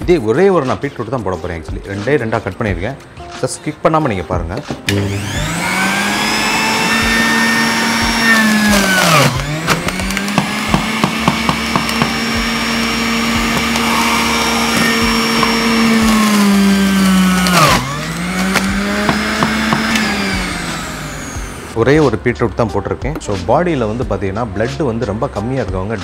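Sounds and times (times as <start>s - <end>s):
electric juicer motor humming: 4.9s - 21.8s.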